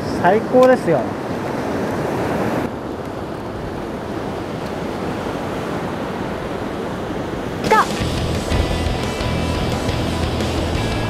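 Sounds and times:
ocean surf breaking on beach: 0.0 - 9.8.

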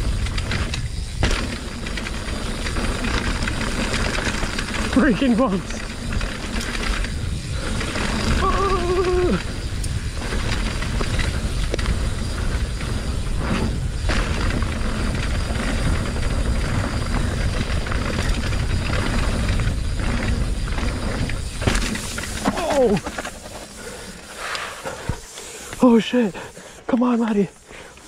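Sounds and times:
bike tyre rumble and rattle: 0.0 - 28.0
wind on microphone: 5.8 - 23.2.

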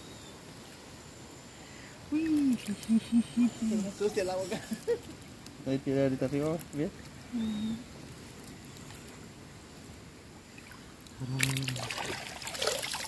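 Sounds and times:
crackling: 2.2 - 10.0
water dripping and splashing: 10.6 - 13.0.

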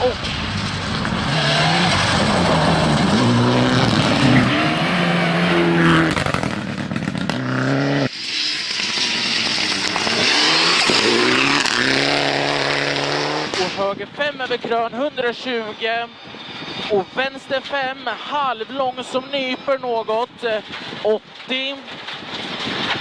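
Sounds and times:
rally car engine at full throttle: 0.0 - 18.1
gravel spraying from tyres: 0.1 - 13.8.

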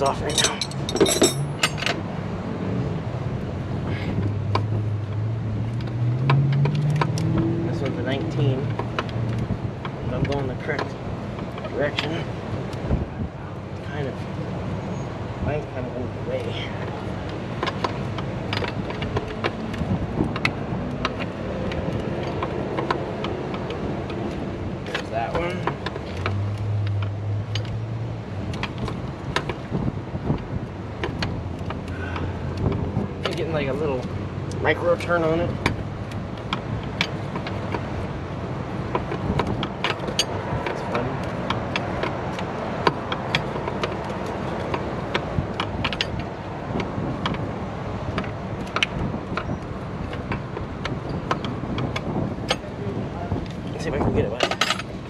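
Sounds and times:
hand tools clicking and tapping metal: 0.0 - 2.0, 16.8 - 27.8, 31.0 - 52.7, 54.3 - 55.0
wrench clinking against metal: 0.0 - 2.0
wind on microphone: 12.7 - 13.6, 18.2 - 24.8, 28.1 - 31.6, 44.4 - 55.0.

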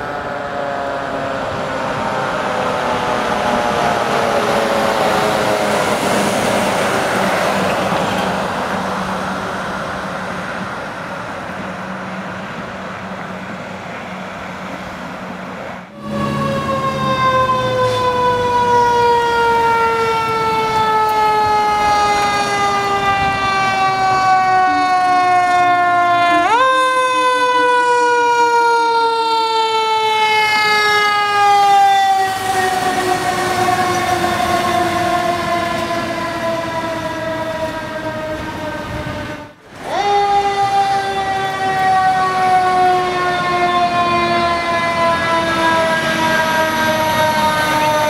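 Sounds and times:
mechanical siren wailing: 15.9 - 48.0.

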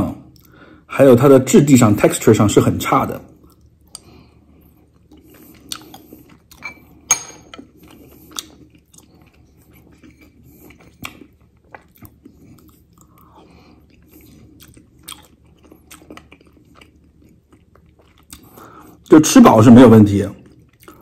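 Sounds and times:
person chewing food: 3.4 - 19.1, 20.4 - 21.0
metal spoon clinking dish: 6.6 - 7.6.

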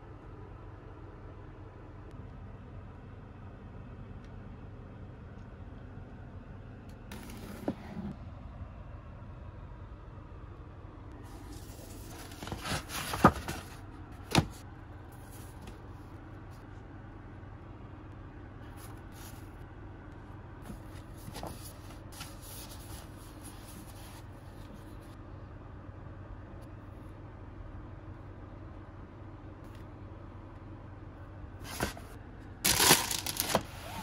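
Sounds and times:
low background hum: 0.0 - 34.0
paper rustling: 7.1 - 7.8, 11.3 - 14.6, 20.6 - 25.1, 31.6 - 32.1, 32.7 - 34.0.

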